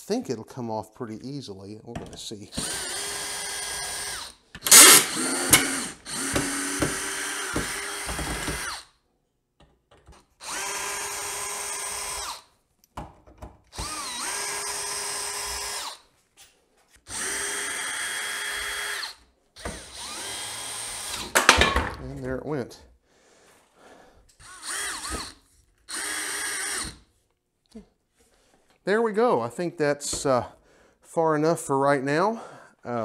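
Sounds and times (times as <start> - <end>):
power drill backing out screws: 2.6 - 8.9, 24.4 - 27.0.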